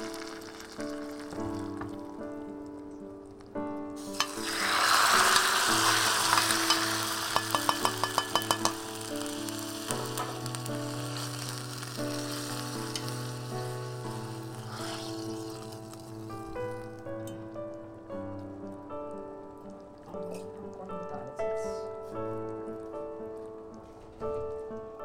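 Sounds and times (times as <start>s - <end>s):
hot oil sizzling: 0.0s - 18.8s
ladle clicking against pan: 4.1s - 4.6s, 6.3s - 8.9s.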